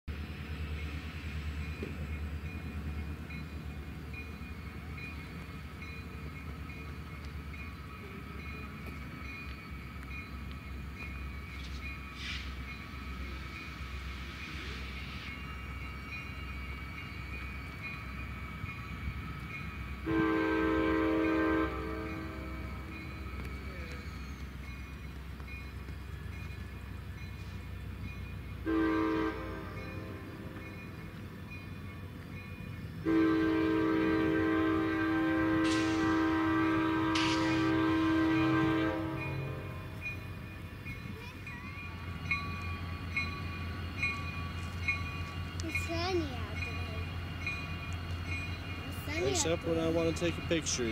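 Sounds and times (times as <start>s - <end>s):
locomotive engines rumbling: 0.1s - 50.9s
train horn blast: 20.0s - 22.7s, 28.6s - 30.5s, 33.0s - 40.0s.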